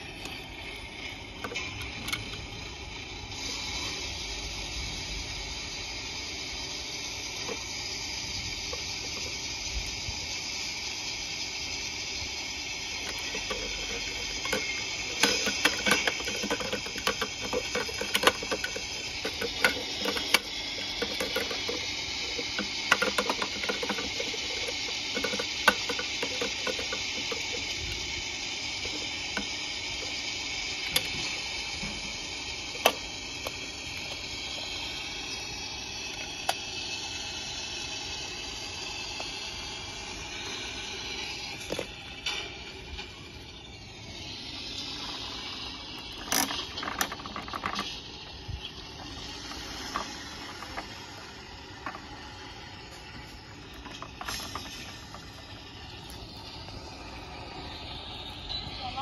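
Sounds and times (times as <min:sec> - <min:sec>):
steady hiss: 0:00.0 - 0:59.0
plastic clicks and rattles: 0:13.0 - 0:27.8, 0:46.1 - 0:48.0, 0:53.7 - 0:55.5.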